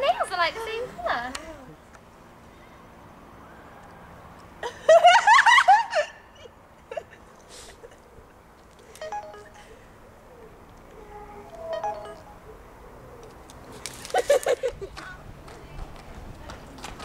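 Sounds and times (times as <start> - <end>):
mobile phone key beeps: 9.0 - 9.6, 11.8 - 12.4.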